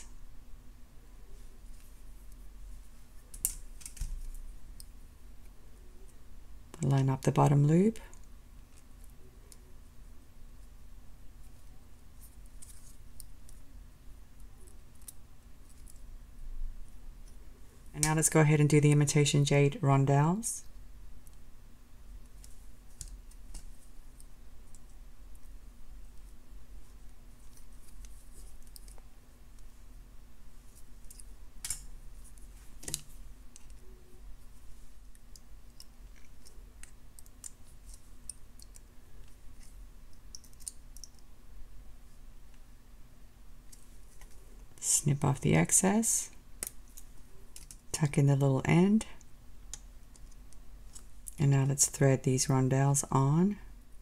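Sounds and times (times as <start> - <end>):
pliers clicking on wire: 3.3 - 5.6, 30.8 - 32.0, 35.1 - 41.3, 46.6 - 47.8
pliers clicking against wire: 40.1 - 41.2.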